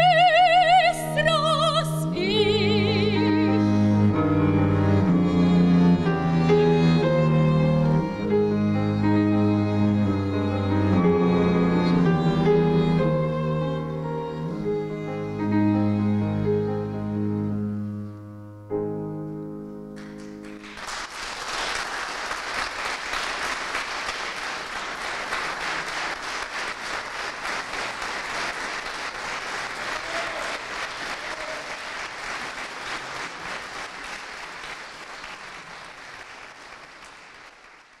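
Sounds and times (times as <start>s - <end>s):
cello and piano chords: 0.0s - 20.8s
audience applause: 20.0s - 38.0s.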